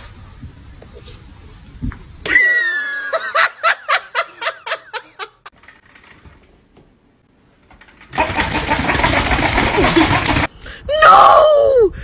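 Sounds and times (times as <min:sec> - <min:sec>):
person laughing: 0:02.3 - 0:05.5, 0:08.7 - 0:10.5.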